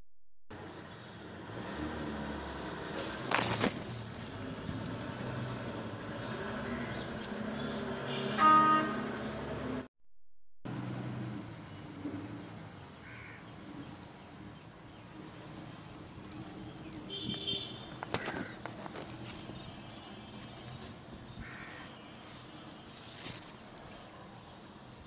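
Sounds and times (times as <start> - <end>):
vehicle horn toot: 8.0 - 9.3, 17.1 - 17.9.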